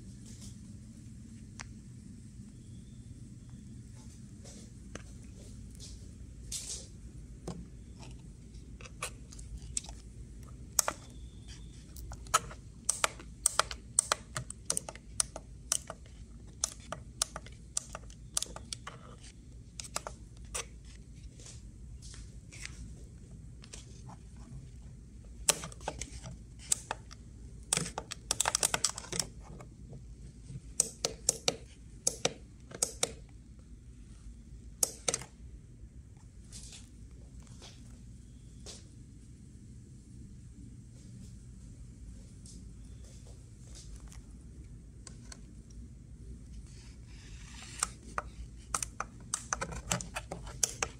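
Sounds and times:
air conditioner fan hum: 0.0s - 50.9s
sharp clicks and taps: 8.9s - 19.0s, 25.4s - 29.7s, 30.7s - 33.4s, 47.7s - 50.9s.

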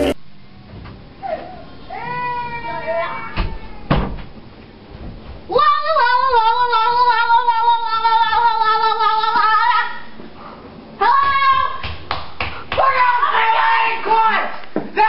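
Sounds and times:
boy yelling high-pitched: 11.0s - 11.8s, 12.8s - 15.0s.

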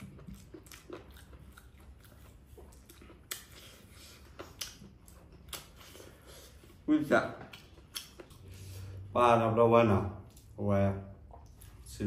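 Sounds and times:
person chewing and smacking: 0.0s - 6.8s, 7.4s - 8.7s, 11.2s - 12.0s.

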